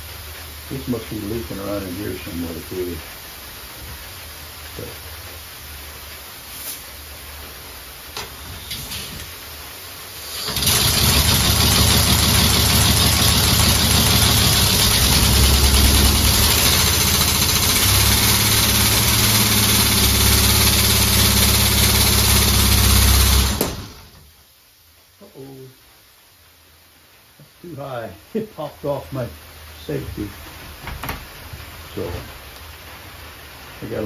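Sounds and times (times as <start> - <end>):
loud air hissing: 8.3 - 24.2.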